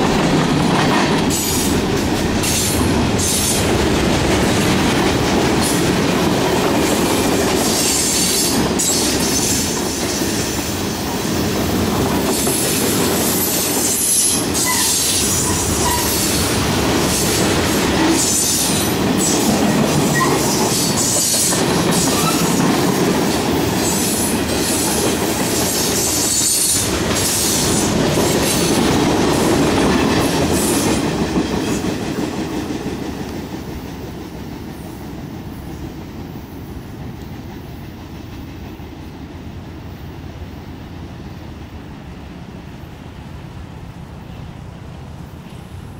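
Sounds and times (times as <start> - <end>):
train wheels clattering over rails: 0.0 - 40.0
high-pitched wheel squeal: 14.0 - 16.3.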